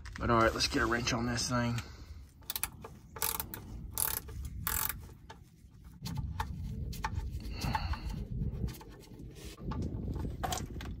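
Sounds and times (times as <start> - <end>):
rubbing and handling noise: 0.0 - 11.0
ratchet wrench clicking: 2.4 - 5.0.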